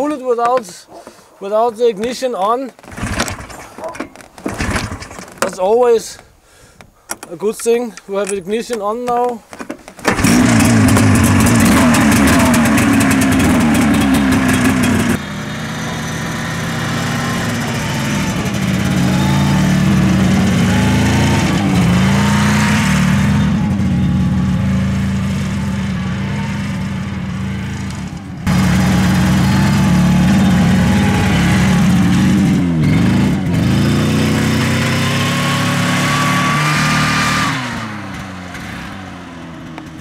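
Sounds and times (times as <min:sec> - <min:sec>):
snowmobile two-stroke engine: 0:10.1 - 0:40.0.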